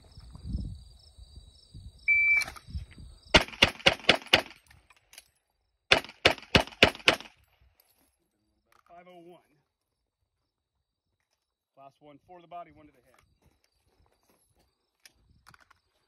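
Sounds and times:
shot timer beep: 0:02.1 - 0:02.5
pistol shots: 0:03.3 - 0:04.6, 0:05.9 - 0:07.4.

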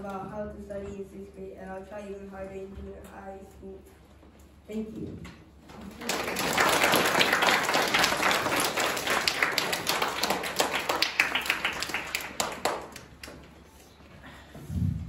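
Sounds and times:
audience applauding: 0:05.8 - 0:13.4.

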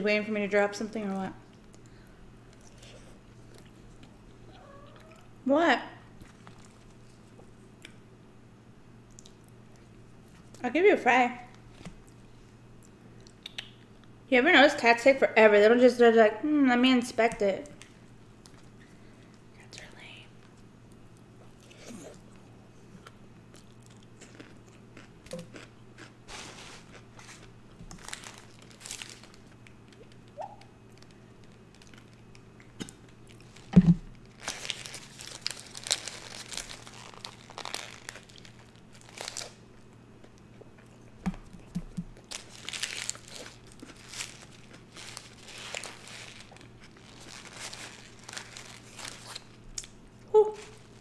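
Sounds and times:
chewing and crunching: 0:20.8 - 0:50.0
paper wrapper crinkling: 0:26.3 - 0:30.2, 0:33.4 - 0:39.6, 0:42.2 - 0:49.6.

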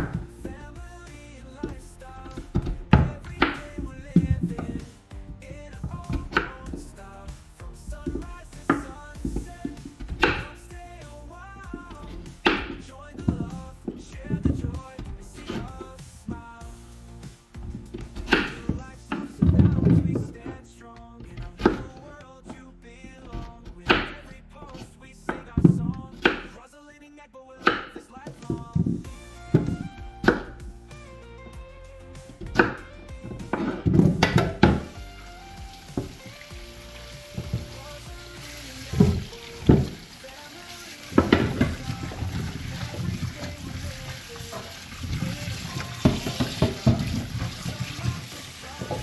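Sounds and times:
background music: 0:00.0 - 0:49.0
tap water running into a steel sink: 0:33.7 - 0:49.0
hand rubbing food in water: 0:34.8 - 0:49.0.

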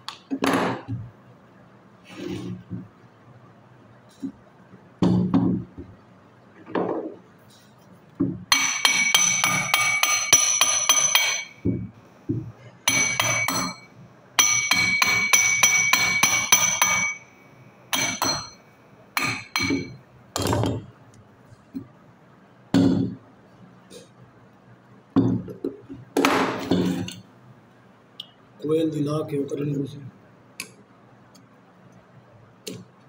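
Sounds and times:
hammer tapping on metal: 0:08.5 - 0:18.6, 0:19.2 - 0:20.8.

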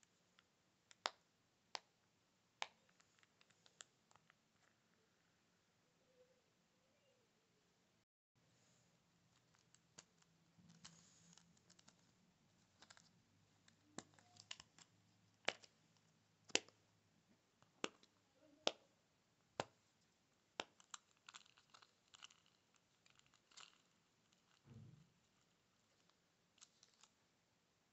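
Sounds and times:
pop-it toy pops and clicks: 0:00.9 - 0:01.9, 0:13.9 - 0:15.7, 0:16.4 - 0:16.8, 0:17.6 - 0:18.8, 0:20.5 - 0:22.5.

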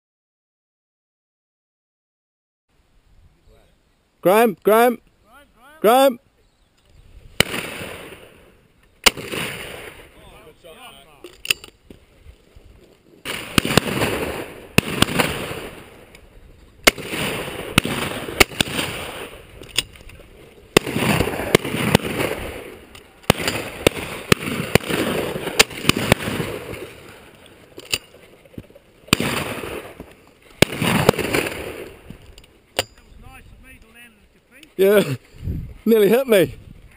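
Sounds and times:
shotgun shots echoing: 0:07.4 - 0:10.5, 0:13.2 - 0:16.1, 0:16.8 - 0:20.0, 0:20.7 - 0:28.2, 0:29.0 - 0:32.2.

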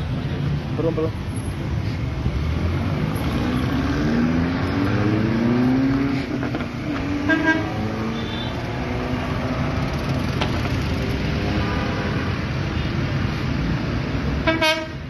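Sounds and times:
street traffic rumble: 0:00.0 - 0:15.0
car horn honk: 0:07.3 - 0:08.6, 0:14.4 - 0:15.0.

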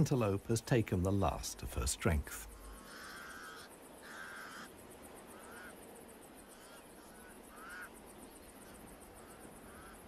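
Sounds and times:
crows cawing: 0:02.5 - 0:10.0.

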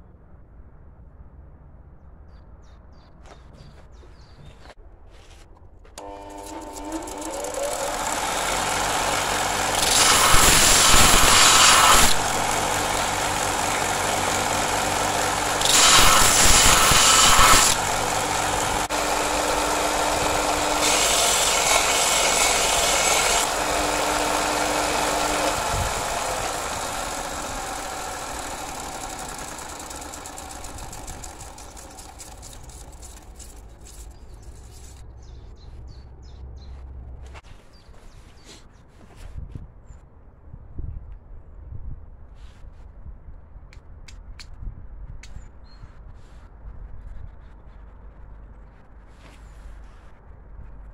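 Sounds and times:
grinder motor humming: 0:06.0 - 0:35.0
rasping hiss on abrasive belt: 0:06.9 - 0:35.0.

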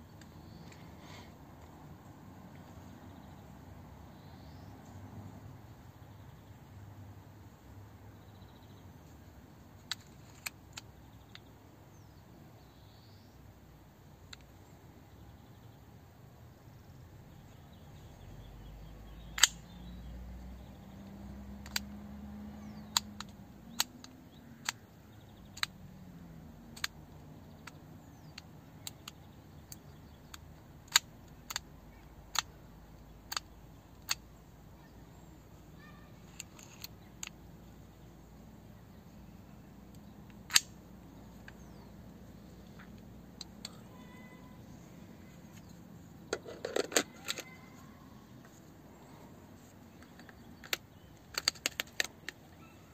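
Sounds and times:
metal lens clicks and taps: 0:19.2 - 0:19.7, 0:21.0 - 0:22.0, 0:22.6 - 0:25.8, 0:26.7 - 0:31.7, 0:32.3 - 0:34.4, 0:36.3 - 0:37.4, 0:39.9 - 0:41.8, 0:45.5 - 0:47.6, 0:49.9 - 0:52.4.

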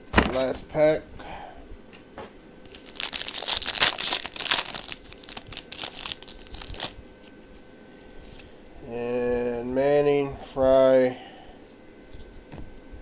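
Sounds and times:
wrapper tearing and crinkling: 0:02.7 - 0:07.0.

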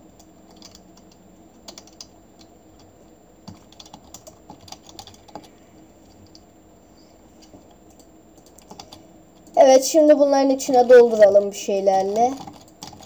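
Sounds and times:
keyboard typing: 0:00.1 - 0:05.5, 0:07.4 - 0:09.6, 0:10.5 - 0:13.0.

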